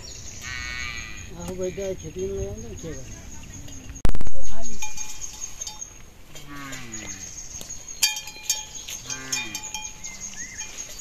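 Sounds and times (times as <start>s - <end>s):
livestock low calls: 0.4s - 2.4s, 6.4s - 7.5s, 8.8s - 10.8s
bell clanking: 4.7s - 7.0s, 7.9s - 11.0s.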